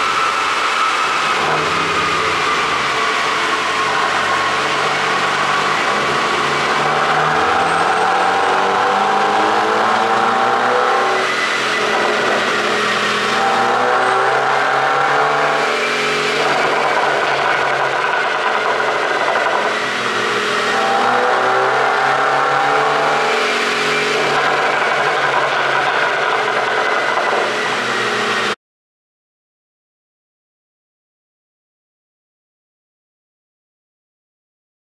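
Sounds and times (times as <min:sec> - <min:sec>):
car engine revving: 0:00.0 - 0:28.6
exhaust crackle: 0:00.5 - 0:21.4, 0:23.6 - 0:28.4.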